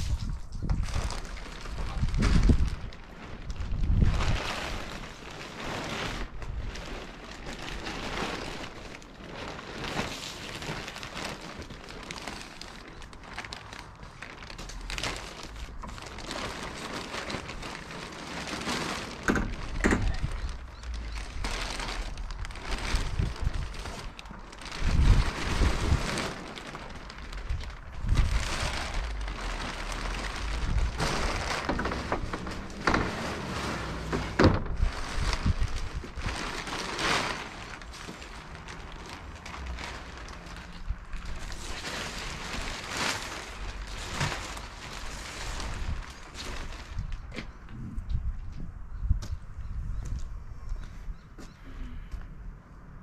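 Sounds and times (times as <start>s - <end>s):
wind rumble on microphone: 0.0s - 9.0s, 19.2s - 51.4s
plastic sheet crinkling: 0.0s - 47.7s.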